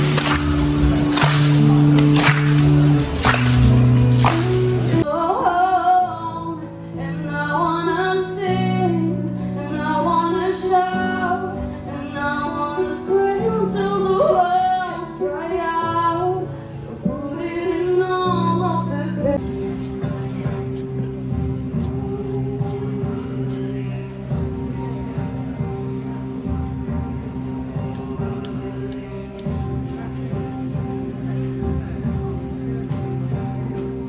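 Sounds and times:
louder different music: 0:00.0 - 0:05.1
woman singing slow song: 0:05.0 - 0:19.4.

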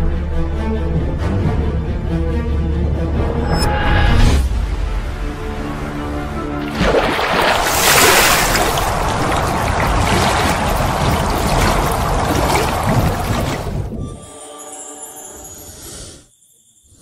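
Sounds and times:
rushing water: 0:05.9 - 0:14.0.

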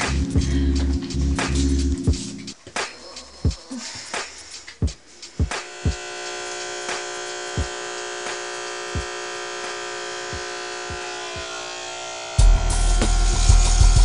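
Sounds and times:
electric hair clipper humming: 0:05.5 - 0:14.0.

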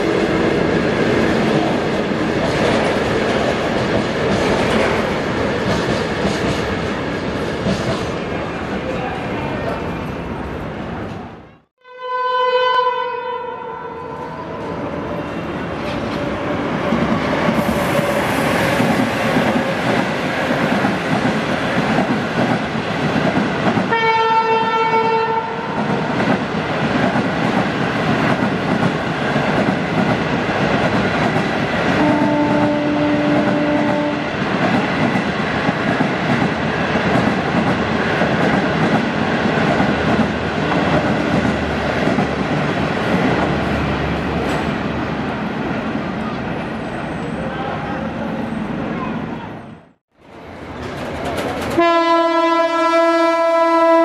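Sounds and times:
train rail noise: 0:00.0 - 0:11.6, 0:13.9 - 0:54.0
locomotive horn blast: 0:11.8 - 0:14.6, 0:23.9 - 0:25.7, 0:32.0 - 0:34.2, 0:51.8 - 0:54.0
lower horn tone: 0:11.8 - 0:14.7.

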